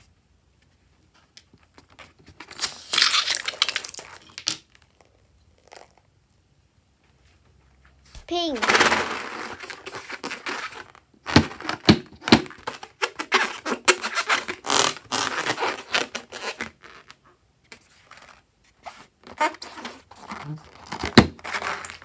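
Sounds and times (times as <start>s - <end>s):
rubbing rubber balloon: 13.1s - 17.1s.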